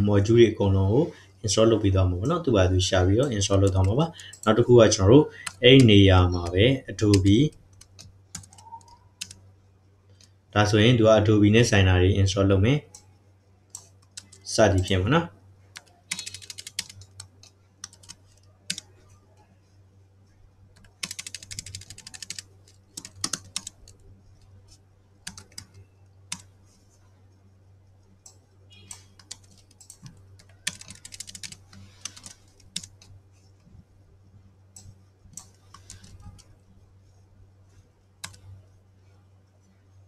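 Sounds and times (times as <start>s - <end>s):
low steady hum: 0.0s - 40.0s
typing on computer keyboard: 7.0s - 9.4s, 13.7s - 14.4s, 15.8s - 18.9s, 20.8s - 24.0s, 25.2s - 26.5s, 28.2s - 33.1s, 34.8s - 36.5s, 38.2s - 38.5s.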